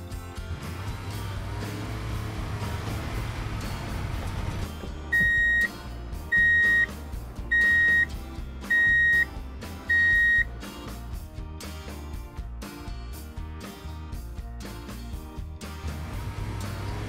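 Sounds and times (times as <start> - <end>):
background music: 0.0 - 17.0
electronic beeps: 5.2 - 5.7, 6.4 - 6.9, 7.5 - 8.1, 8.7 - 9.2, 9.9 - 10.4.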